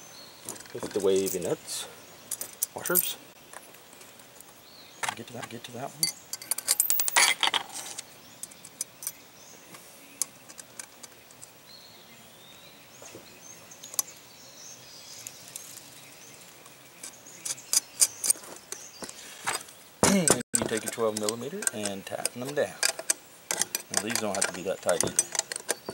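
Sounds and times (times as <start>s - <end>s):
small metal clicks of washers and nuts: 5.0s - 7.7s, 8.4s - 11.6s, 20.2s - 25.9s.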